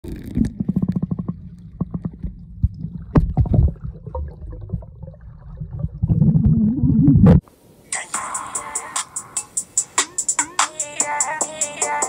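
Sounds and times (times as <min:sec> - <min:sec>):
underwater gurgling water: 0:00.0 - 0:07.4.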